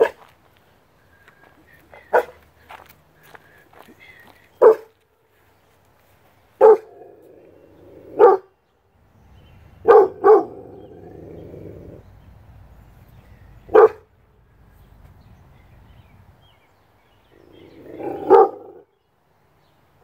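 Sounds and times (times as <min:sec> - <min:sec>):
puppy barking: 0:00.0 - 0:00.2, 0:02.1 - 0:02.4, 0:04.6 - 0:04.9, 0:06.6 - 0:07.2, 0:08.1 - 0:08.5, 0:09.8 - 0:10.8, 0:13.7 - 0:14.1, 0:17.8 - 0:18.8.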